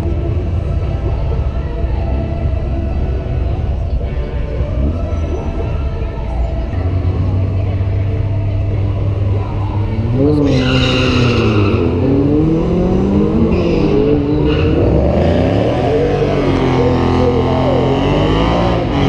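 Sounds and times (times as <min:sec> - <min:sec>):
race car engines revving: 0:00.0 - 0:19.0
tyre squeal: 0:10.3 - 0:12.1, 0:13.4 - 0:15.2.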